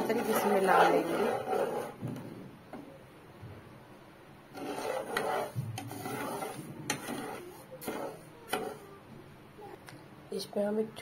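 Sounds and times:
spatula scraping sugar in pan: 0:00.0 - 0:02.0, 0:04.5 - 0:08.9.

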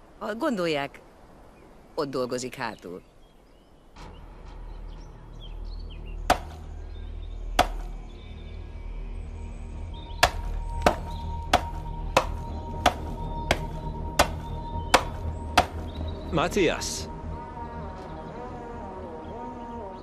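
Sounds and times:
background music: 0:04.0 - 0:20.0
axe chopping wood: 0:06.3 - 0:06.6, 0:07.6 - 0:07.9, 0:10.2 - 0:15.9.

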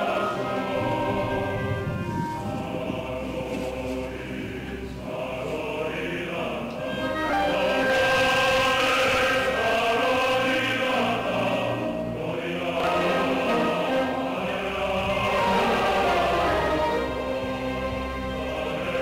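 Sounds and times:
choir-like chanting music: 0:00.0 - 0:19.0.

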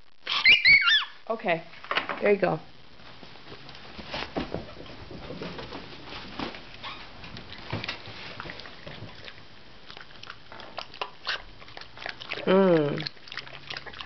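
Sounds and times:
dog chewing food: 0:07.2 - 0:14.0
teeth clicking on bowl: 0:09.9 - 0:14.0.

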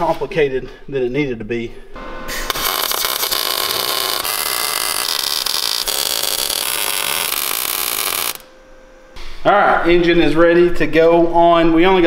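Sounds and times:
welder arc crackling: 0:02.5 - 0:08.5.

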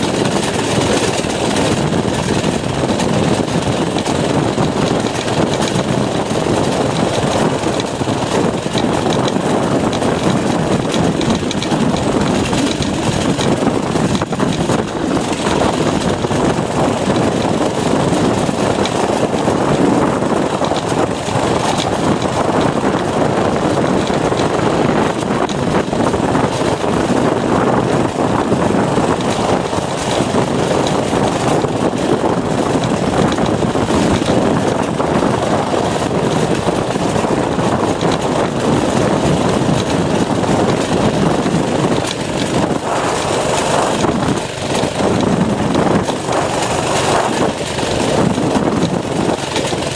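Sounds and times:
small engine running: 0:00.0 - 0:49.9.

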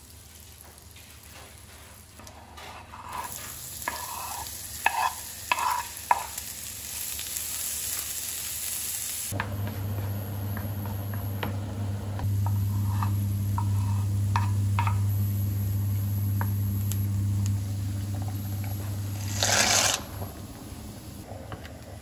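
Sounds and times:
wooden spoon stirring onions in pan: 0:00.3 - 0:07.0, 0:12.3 - 0:15.0
steady low hum: 0:09.3 - 0:22.0.

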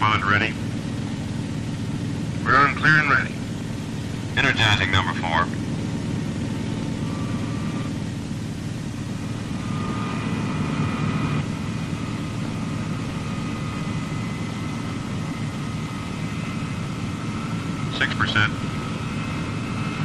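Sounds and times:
jet engine starting: 0:02.5 - 0:20.0.

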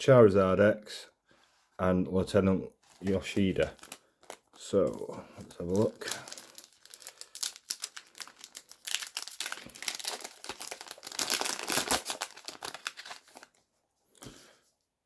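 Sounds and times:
foil wrapper tearing and crinkling: 0:02.9 - 0:13.6.

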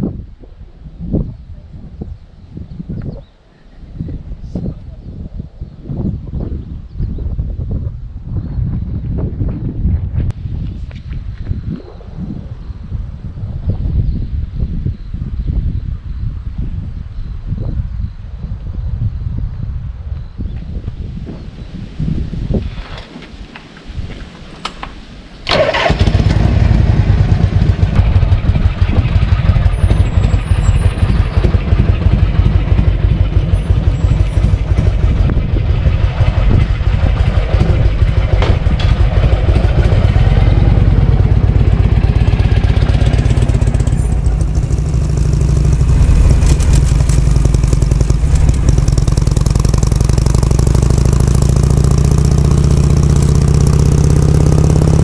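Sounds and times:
motorcycle engine pulsing beat: 0:42.7 - 0:55.0.

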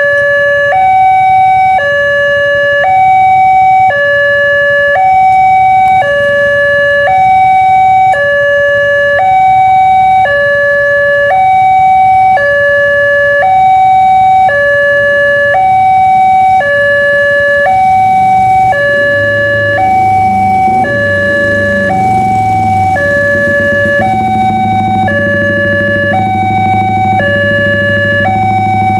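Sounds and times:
two-tone level crossing alarm: 0:00.0 - 0:28.9
low rumble: 0:18.0 - 0:28.9.

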